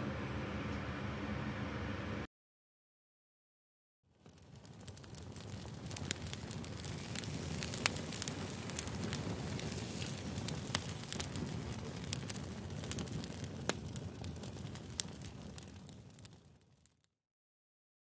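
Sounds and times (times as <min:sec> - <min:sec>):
fire crackling and popping: 0:04.1 - 0:17.2.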